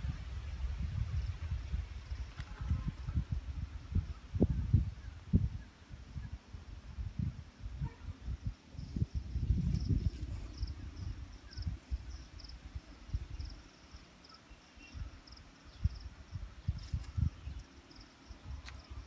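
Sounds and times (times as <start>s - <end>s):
insect chirping: 8.4s - 19.0s.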